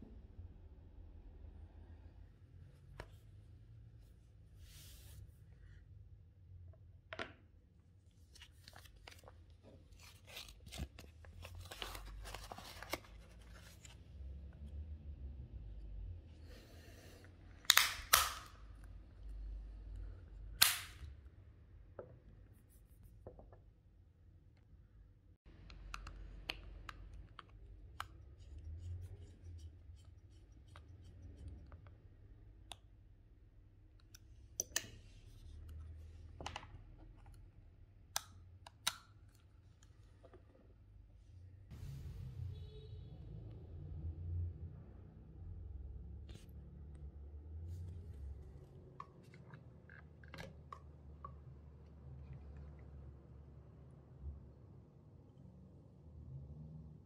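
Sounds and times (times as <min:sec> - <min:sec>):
hands handling sunglasses frame: 0:08.2 - 0:14.1
lenses snapping into frame: 0:17.7 - 0:18.5.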